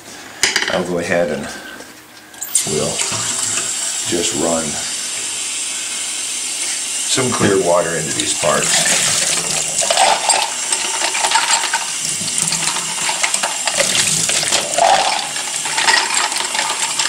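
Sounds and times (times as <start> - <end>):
tap water running into sink: 2.4 - 17.0
metal parts clinking: 15.6 - 16.9.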